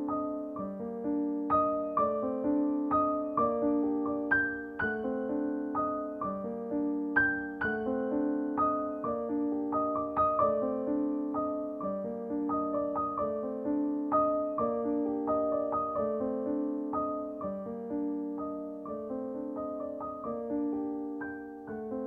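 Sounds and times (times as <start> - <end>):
gentle piano music: 0.0 - 22.0.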